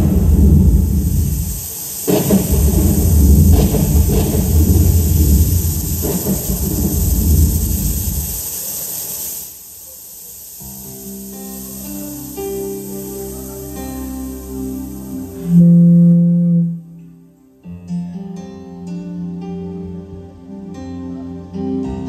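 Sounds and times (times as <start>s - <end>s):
deep thunder-like rumble: 0.0s - 8.5s.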